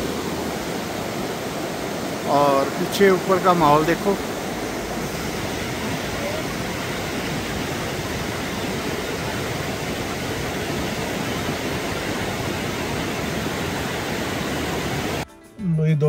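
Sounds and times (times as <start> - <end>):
river rushing: 0.0 - 15.2.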